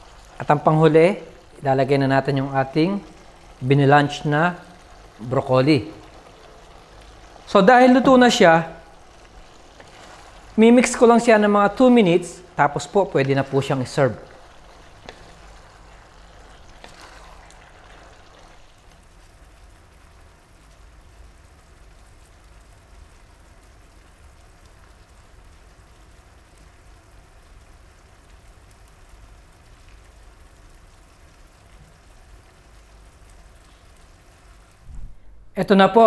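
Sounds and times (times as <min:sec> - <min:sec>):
wooden spatula stirring: 0:00.0 - 0:18.7
sauce bubbling in a frying pan: 0:00.0 - 0:34.9.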